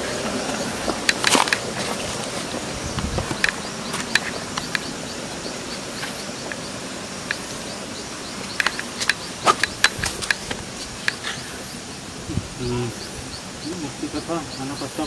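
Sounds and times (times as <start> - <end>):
outdoor background noise: 0.0 - 15.0
sharp clicks and snaps: 8.4 - 11.2.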